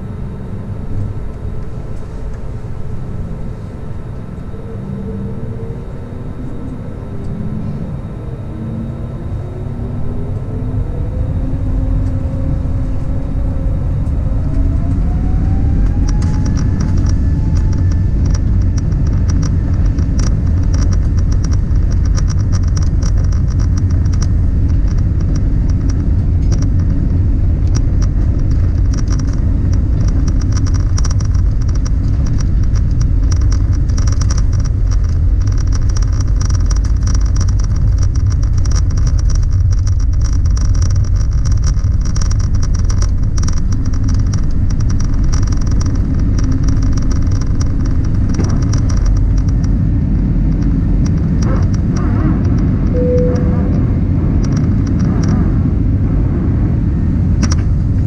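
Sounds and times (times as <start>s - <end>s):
engine rumble: 0.0s - 58.0s
jet engine whine: 0.0s - 58.0s
wheels rattling and knocking: 14.8s - 53.0s.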